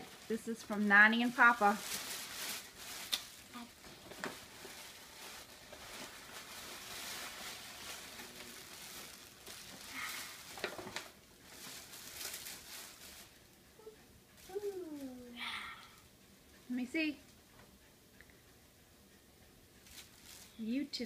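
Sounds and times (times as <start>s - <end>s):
tissue paper rustling: 0.0s - 13.5s, 19.8s - 20.8s.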